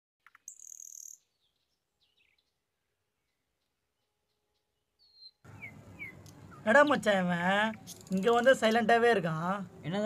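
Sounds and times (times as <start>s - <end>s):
faint bird chirps: 0.2s - 7.1s.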